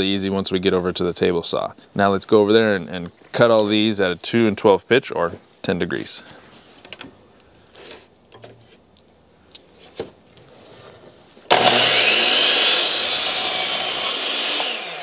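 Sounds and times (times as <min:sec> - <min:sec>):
miter saw cutting wood: 0:11.5 - 0:15.0.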